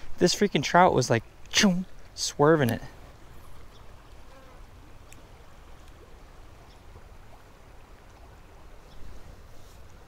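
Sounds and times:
flowing water hiss: 0.0s - 10.0s
faint ticks: 3.7s - 6.1s.

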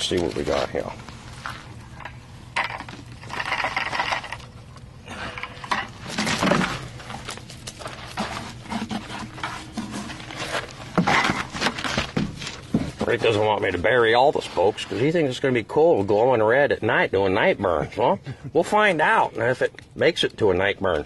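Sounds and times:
wet mud scraping and rubbing on metal: 5.5s - 15.5s.

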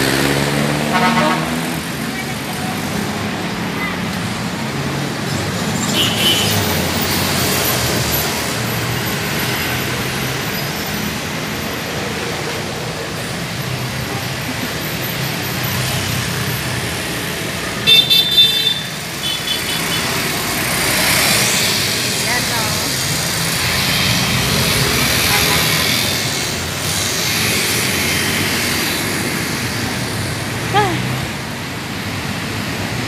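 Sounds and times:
road traffic rumble: 0.0s - 33.0s.

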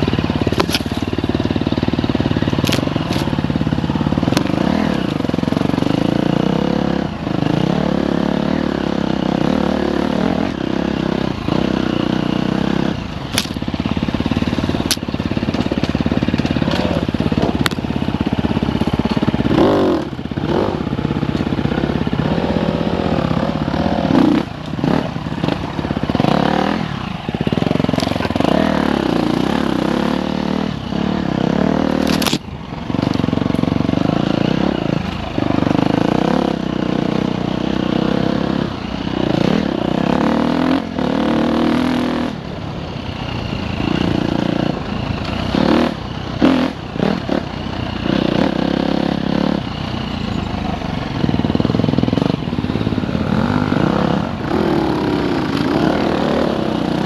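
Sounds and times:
dirt bike engine revving: 0.0s - 57.0s
sharp clicks and scrapes: 32.0s - 32.4s.

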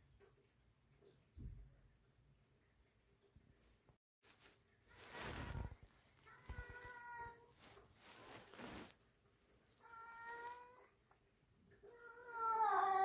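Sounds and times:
cat meowing: 5.4s - 7.6s, 9.8s - 10.9s, 11.8s - 13.0s.

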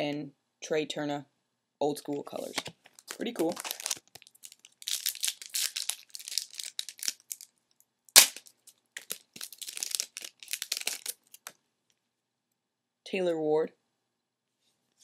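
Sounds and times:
foil wrapper crinkling and tearing: 2.4s - 7.5s, 8.2s - 11.5s.

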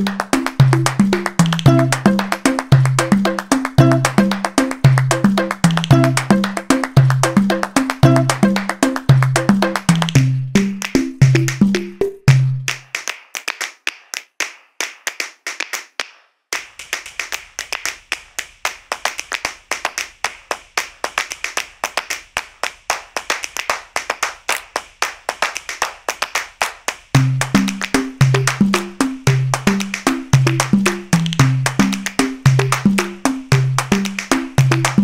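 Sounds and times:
children's dance music: 0.0s - 12.9s, 27.1s - 35.0s
hand claps: 0.0s - 35.0s.

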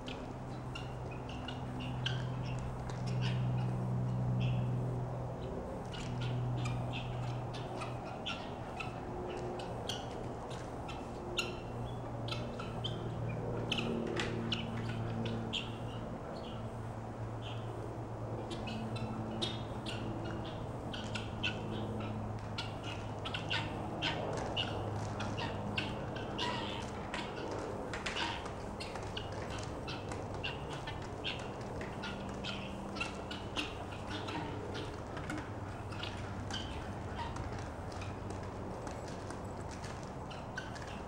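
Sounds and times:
poultry squawking and chirping: 0.5s - 3.8s, 5.8s - 16.5s, 18.4s - 38.4s.

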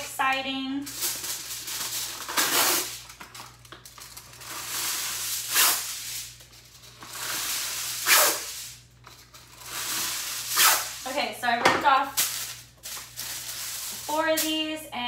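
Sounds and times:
aluminium foil tearing: 0.9s - 11.1s, 12.1s - 14.6s
foil crinkling and rustling: 12.2s - 14.7s.

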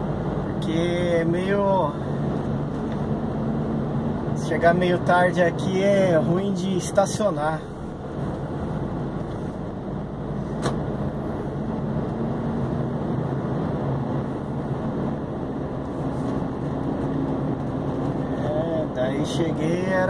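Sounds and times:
truck diesel engine running: 7.3s - 19.8s
sharp click: 10.6s - 10.8s.

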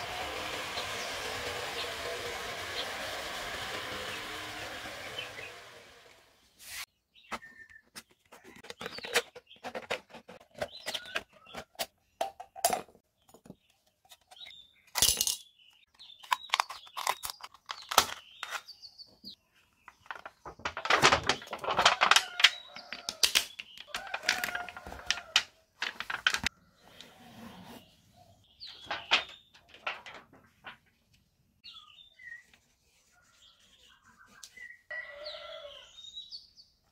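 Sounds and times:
thin metal crackling: 28.7s - 30.9s.

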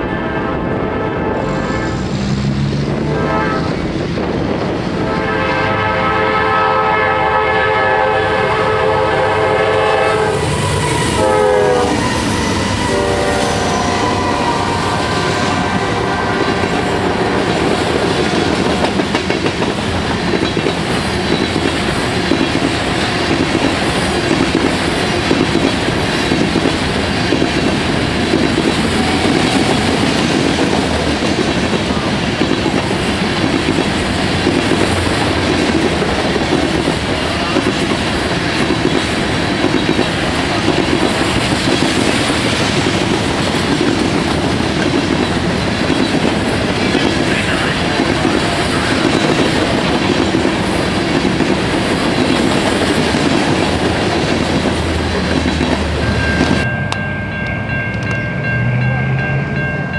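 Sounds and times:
locomotive horn blowing a chord: 0.0s - 2.0s, 3.0s - 3.8s, 5.0s - 17.3s, 28.9s - 30.1s
train wheels clacking on rails: 1.5s - 59.9s.

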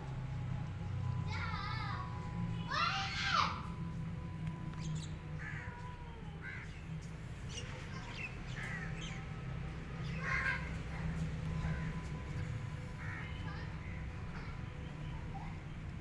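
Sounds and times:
birds calling: 4.7s - 5.8s, 6.4s - 16.0s.

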